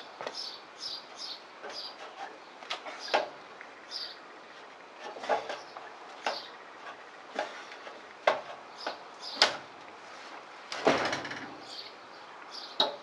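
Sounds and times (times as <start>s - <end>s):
shoes knocking on ladder rungs: 8.2s - 9.6s
scraping thud of roofing roll: 9.4s - 11.6s.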